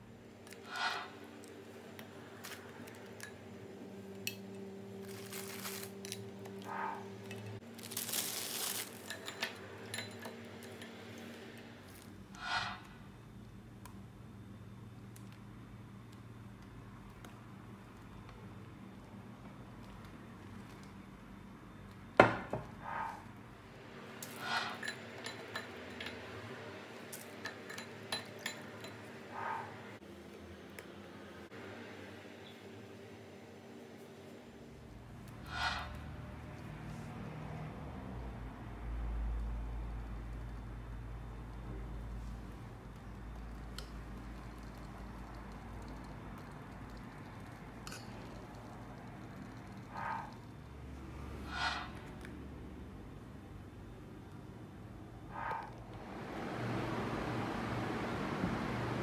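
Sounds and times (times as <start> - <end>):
steady low hum: 0.0 - 59.0
rustling: 5.0 - 6.1, 7.6 - 9.3
biscuits tapping and crinkling: 7.6 - 9.5
utensils clinking on glass dish: 8.9 - 10.9, 24.5 - 26.3, 27.1 - 29.1.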